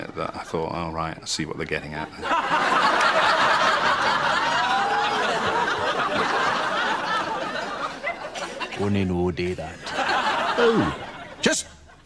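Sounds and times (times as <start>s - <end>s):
audience laughing: 2.2s - 9.0s, 9.7s - 12.0s.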